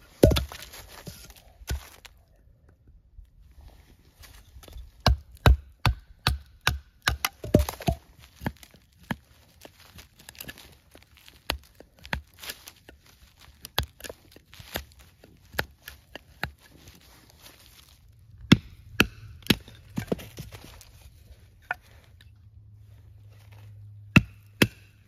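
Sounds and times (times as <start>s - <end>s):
knife chopping wooden stake: 0.2s - 2.1s, 4.7s - 17.0s, 18.4s - 20.9s, 24.1s - 25.0s.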